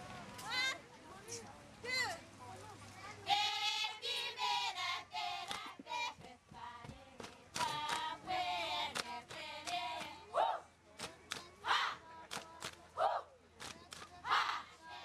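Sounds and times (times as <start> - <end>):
women singing a chant: 3.2 - 13.4, 14.1 - 15.0
hand claps: 5.5 - 5.8, 7.2 - 8.2, 8.9 - 10.2, 11.0 - 11.6, 12.3 - 12.8, 13.6 - 14.1.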